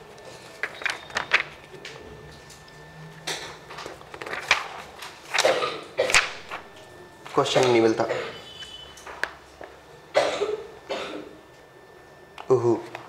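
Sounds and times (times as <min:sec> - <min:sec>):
paper pages rustling: 0:00.1 - 0:02.8, 0:03.6 - 0:05.5, 0:06.1 - 0:07.9.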